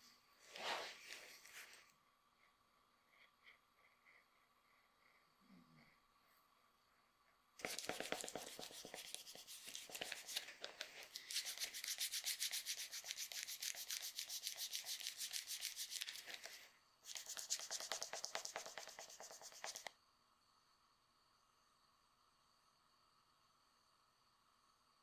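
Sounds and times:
brush scrubbing leather shoe sole: 7.6s - 10.4s, 11.2s - 16.1s.

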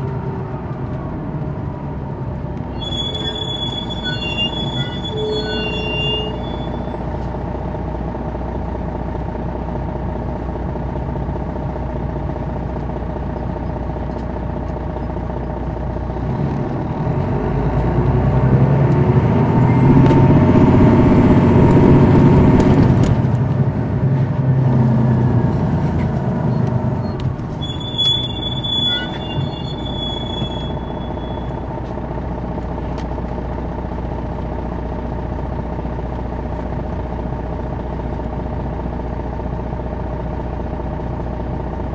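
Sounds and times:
diesel engine accelerating: 0.0s - 41.9s
brief high squeal: 2.6s - 7.1s, 27.0s - 31.7s
high whine: 19.2s - 23.1s, 27.0s - 31.9s.

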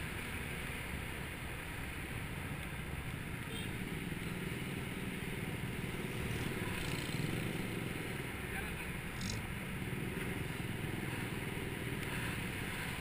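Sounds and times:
scooter engine running: 3.8s - 8.4s, 9.0s - 12.2s.

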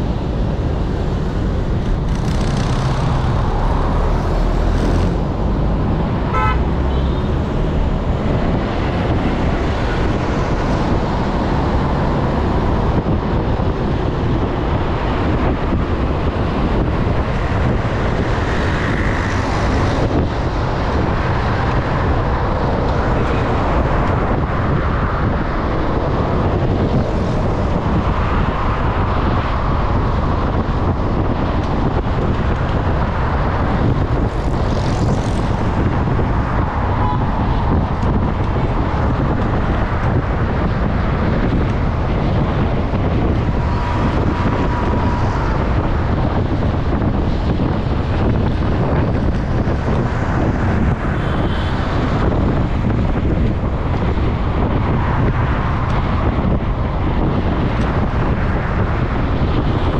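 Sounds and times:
road traffic rumble: 0.0s - 59.9s
vehicle horn toot: 6.3s - 7.3s.

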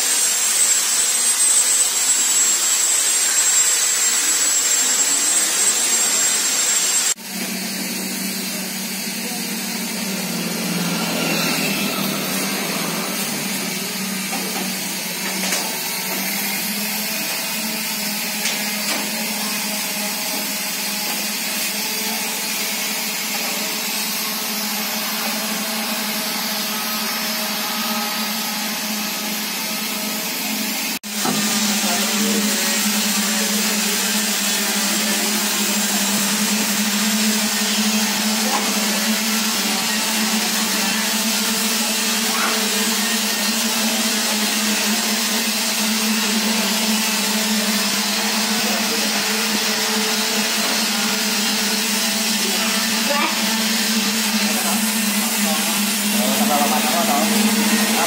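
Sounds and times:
machine motor humming: 0.1s - 58.0s.

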